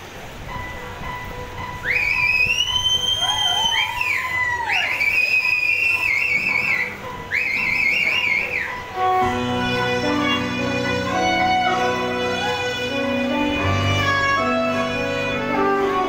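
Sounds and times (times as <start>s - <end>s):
high whistling melody: 0.6s - 16.0s
lower sliding tone: 6.0s - 16.0s.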